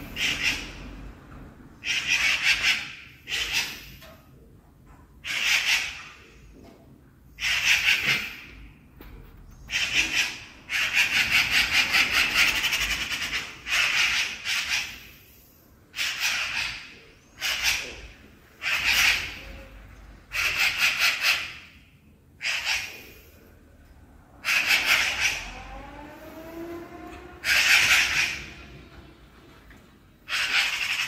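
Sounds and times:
magpie chattering: 0.0 - 0.8, 1.8 - 4.0, 5.2 - 6.3, 7.4 - 8.6, 9.6 - 15.2, 15.9 - 19.7, 20.3 - 21.8, 22.4 - 23.2, 24.4 - 25.5, 27.4 - 28.6, 30.2 - 31.0.

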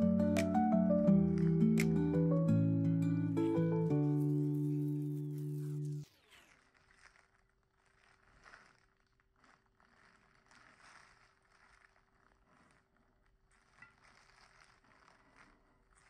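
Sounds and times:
soft rustles: 4.0 - 16.0.

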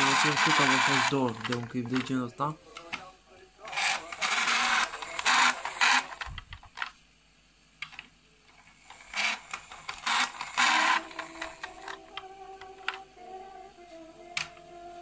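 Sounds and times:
toy truck friction motor whirring: 0.0 - 1.6, 3.7 - 6.3, 8.7 - 12.0.

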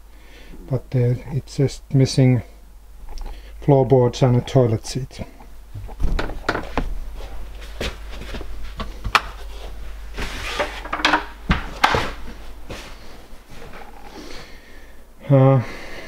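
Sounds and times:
footsteps on wooden floorboards: 5.8 - 13.9.

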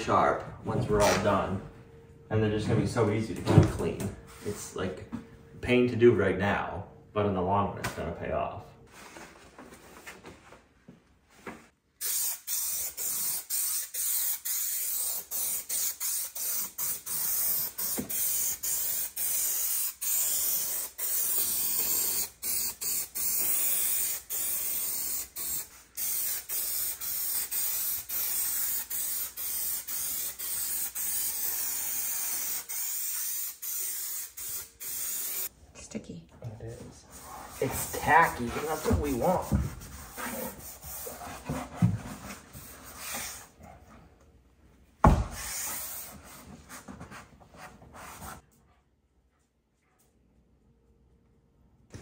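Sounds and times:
aerosol can spraying hiss: 12.0 - 35.5.

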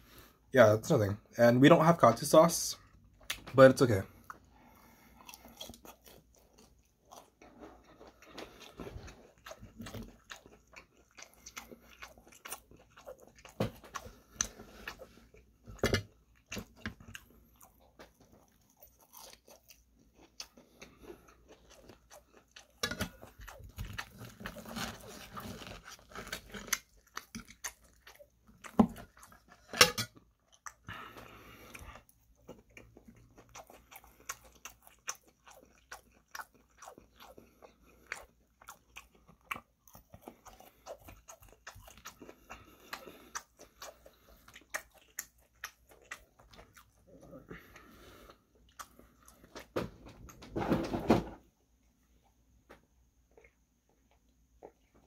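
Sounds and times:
chewing and crunching fried chicken: 0.0 - 55.0.

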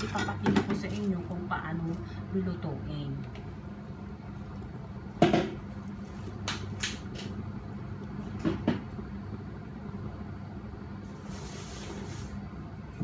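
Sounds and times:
kitchen clicks and knocks: 0.0 - 1.0
steady low hum: 0.0 - 13.0.

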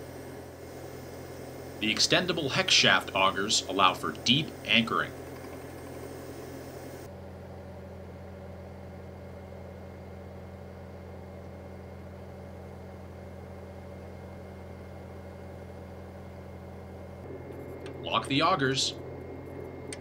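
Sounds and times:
diesel engine running: 0.0 - 7.1.

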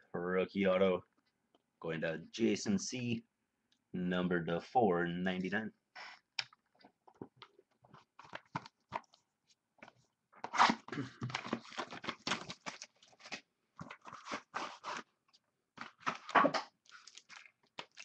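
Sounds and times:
wrapper tearing and crinkling: 11.4 - 15.0, 15.8 - 18.0.

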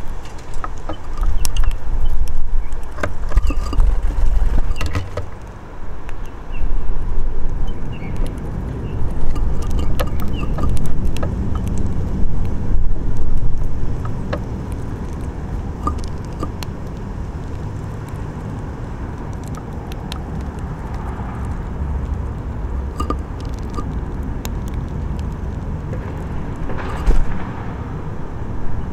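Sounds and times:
road traffic rumble: 0.0 - 28.9.

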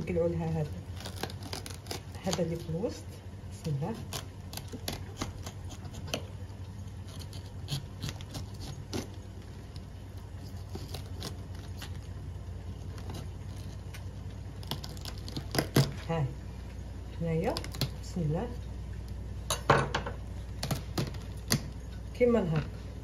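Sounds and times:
knife cutting cabbage: 0.0 - 3.0, 3.6 - 6.3, 7.0 - 9.2, 10.4 - 12.1, 14.6 - 16.1, 17.4 - 18.1, 20.6 - 21.8.

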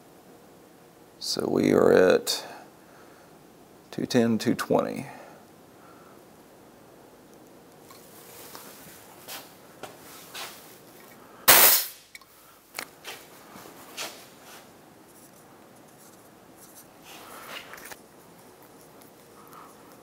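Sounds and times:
valve venting air hiss: 11.5 - 12.1.

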